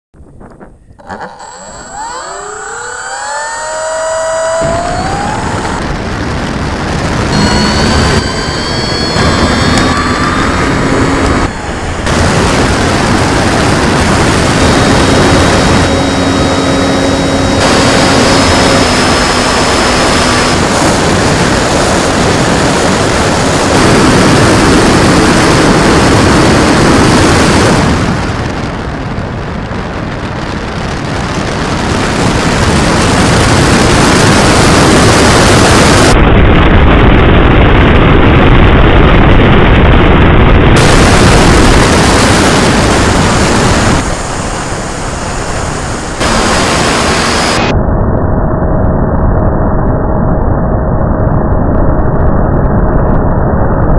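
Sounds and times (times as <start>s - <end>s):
wind rush over microphone: 0.2s - 53.9s
thin motor whine: 0.9s - 28.6s, 31.8s - 36.2s, 40.8s - 50.7s
model plane motor and propeller: 1.0s - 6.2s, 7.3s - 27.8s.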